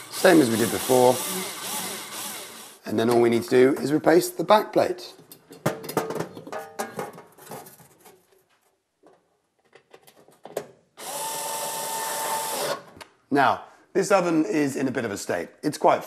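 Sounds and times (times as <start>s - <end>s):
electric screwdriver whining: 0.0s - 2.8s, 11.0s - 12.9s
metal plate knocking and clattering: 5.5s - 8.0s.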